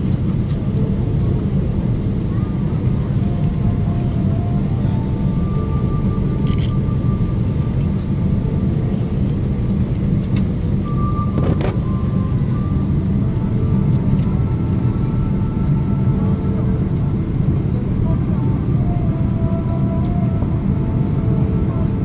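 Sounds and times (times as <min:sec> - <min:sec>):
jet engine rumble and rushing air: 0:00.0 - 0:22.0.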